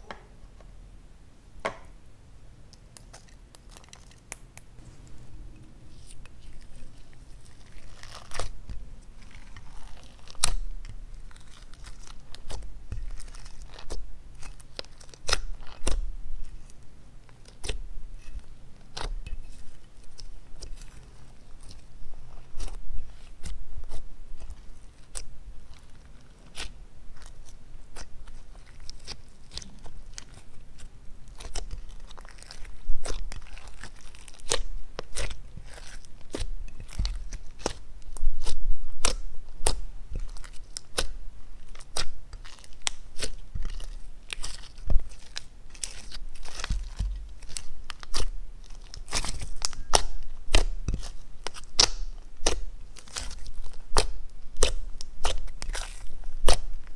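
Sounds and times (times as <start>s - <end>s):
slime clicking and popping: 46.5s - 53.3s.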